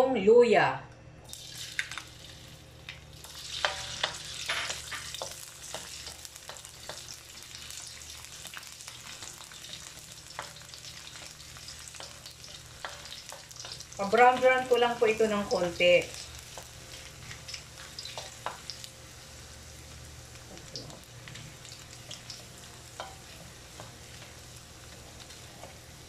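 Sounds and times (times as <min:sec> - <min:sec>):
ginger sizzling in hot oil: 0:01.2 - 0:26.0
spoon stirring in wok: 0:21.9 - 0:26.0.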